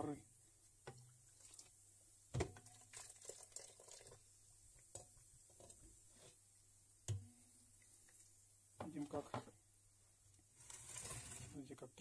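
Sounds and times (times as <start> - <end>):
faint splashing and crackling: 0.0 - 12.0.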